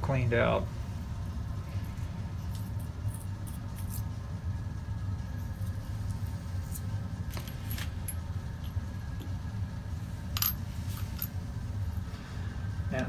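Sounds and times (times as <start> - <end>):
steady low hum: 0.0 - 13.0
small metal parts and jars clinking: 2.4 - 4.1, 10.3 - 11.3.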